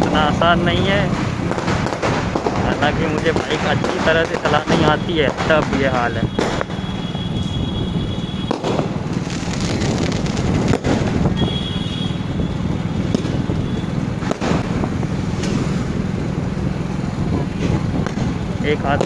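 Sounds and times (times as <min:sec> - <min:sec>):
wind on microphone: 0:00.0 - 0:19.0
firecracker bangs: 0:00.8 - 0:16.8, 0:17.6 - 0:19.0
motorcycle engine running: 0:08.2 - 0:19.0.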